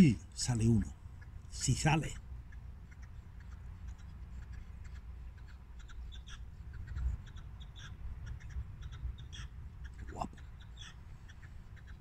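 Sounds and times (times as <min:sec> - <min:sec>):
low steady rumble: 0:00.0 - 0:12.0
short bird calls: 0:02.5 - 0:12.0.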